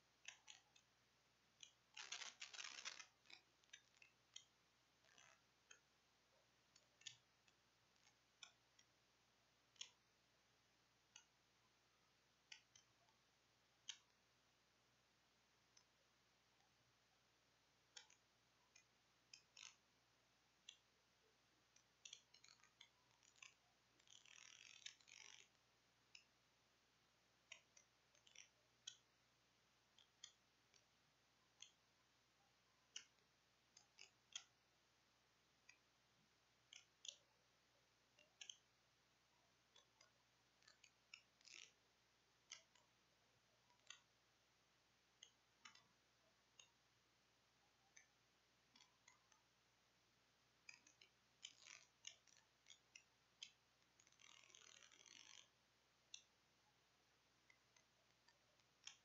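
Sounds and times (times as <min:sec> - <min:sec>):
small clicks: 0:00.0 - 0:01.0, 0:01.6 - 0:06.0, 0:06.6 - 0:10.1, 0:11.0 - 0:11.4, 0:12.2 - 0:14.3, 0:17.8 - 0:20.0, 0:20.6 - 0:21.0, 0:21.6 - 0:26.4, 0:27.4 - 0:29.2, 0:29.8 - 0:31.9, 0:32.9 - 0:34.6, 0:35.4 - 0:38.9, 0:39.6 - 0:43.0, 0:43.6 - 0:44.2, 0:45.1 - 0:46.9, 0:47.8 - 0:49.6, 0:50.6 - 0:56.4, 0:57.4 - 0:59.0.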